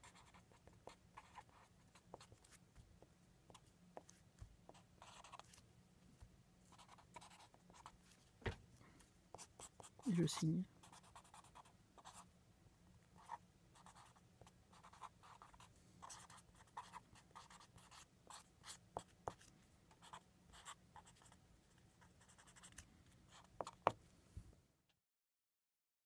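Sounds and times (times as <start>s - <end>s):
pen scratching on paper: 0.0s - 2.9s, 3.5s - 5.6s, 6.6s - 8.2s, 9.3s - 12.3s, 13.2s - 24.0s.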